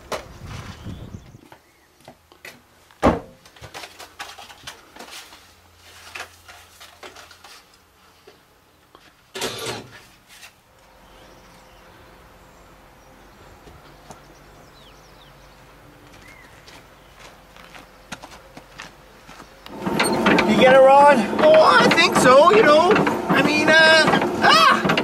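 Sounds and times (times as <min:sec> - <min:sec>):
door banging shut: 0:03.0 - 0:03.4.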